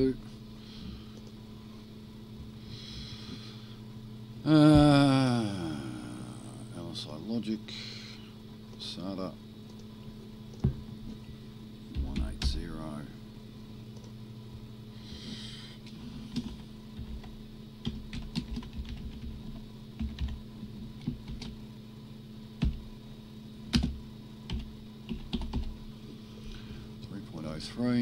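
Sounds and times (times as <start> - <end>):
steady low hum: 0.0 - 28.0
keyboard typing: 16.3 - 19.4, 23.7 - 25.7.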